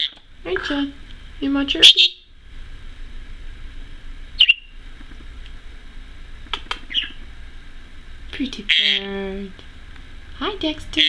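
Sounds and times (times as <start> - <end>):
budgerigar chirps: 1.8 - 2.2, 4.4 - 4.7, 6.9 - 7.2, 8.7 - 9.1.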